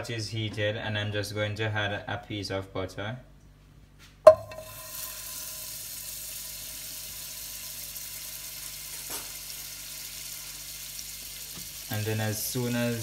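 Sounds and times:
butter sizzling in a pot: 0:04.4 - 0:13.0.

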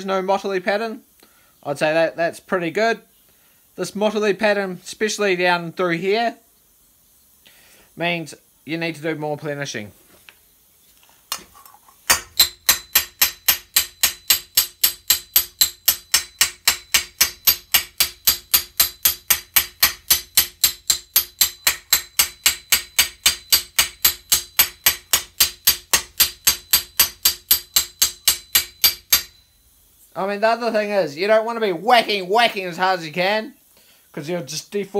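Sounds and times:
hammer tapping on steel: 0:12.1 - 0:29.4.

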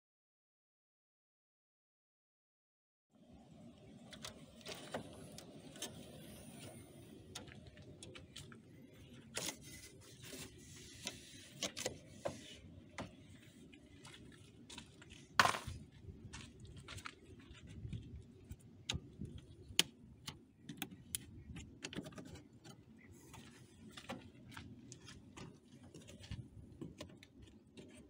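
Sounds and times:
hands clicking and tapping plastic: 0:18.5 - 0:22.9.

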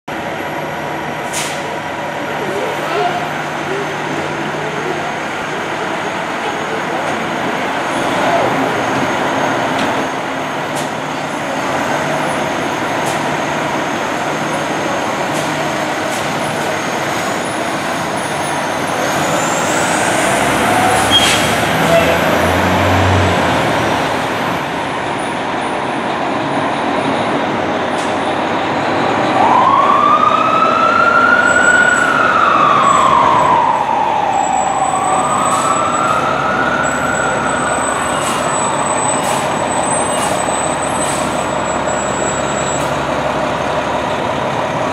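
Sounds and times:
diesel engines running: 0:00.1 - 0:44.9
siren wailing: 0:29.2 - 0:39.8.

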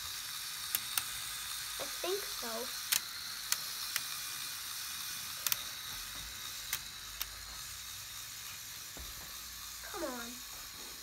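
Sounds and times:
sharp plastic clicks: 0:02.8 - 0:04.2.

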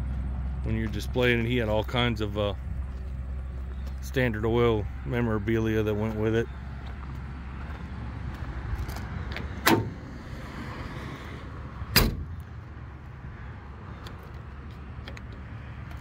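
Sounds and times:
sharp metallic latch clicks: 0:09.6 - 0:10.0, 0:11.9 - 0:12.4.

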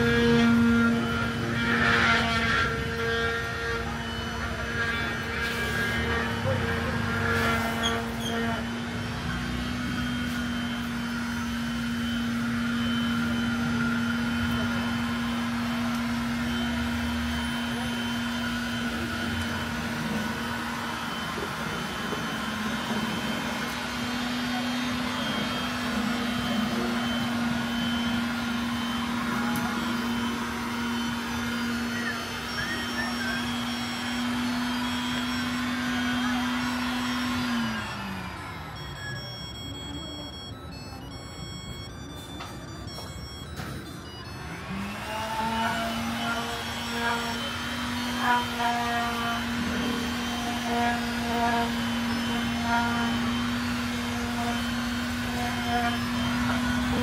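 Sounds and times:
low machine hum: 0:00.0 - 0:57.0
market noise: 0:00.0 - 0:57.0
indistinct voices: 0:12.8 - 0:57.0.

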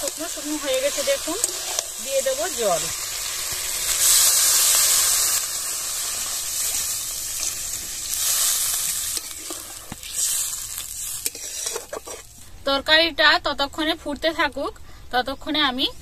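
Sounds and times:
metal spatula scraping pan: 0:00.0 - 0:02.4, 0:11.2 - 0:12.3
water sizzling in hot pan: 0:00.0 - 0:12.4.

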